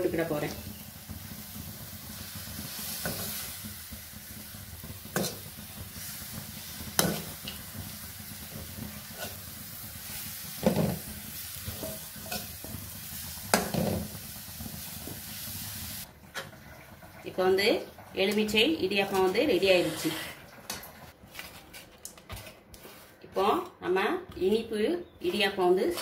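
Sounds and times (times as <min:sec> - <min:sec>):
oil sizzling: 0:00.0 - 0:21.2.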